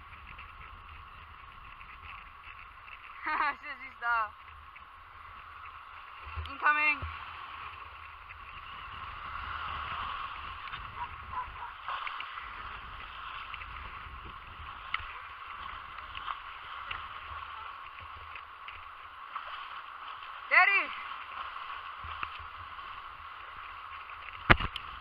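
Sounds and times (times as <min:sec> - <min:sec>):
faint clicks: 0:00.0 - 0:03.3, 0:04.3 - 0:08.7, 0:11.8 - 0:20.3, 0:21.2 - 0:25.0
small waves sloshing: 0:00.0 - 0:25.0.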